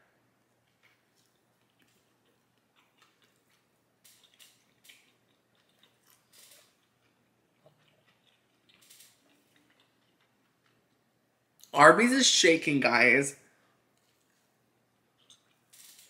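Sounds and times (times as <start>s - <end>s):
faint crunchy chewing: 0.4s - 11.8s, 13.6s - 16.0s.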